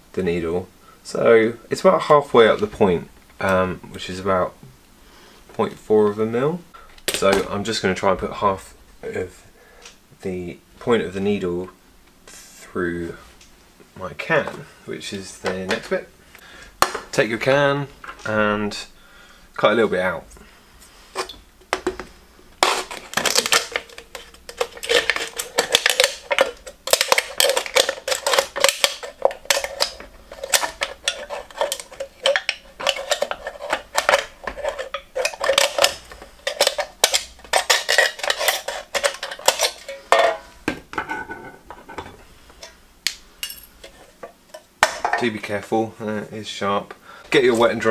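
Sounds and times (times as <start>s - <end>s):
scissors cutting metal can: 22.6s - 39.9s.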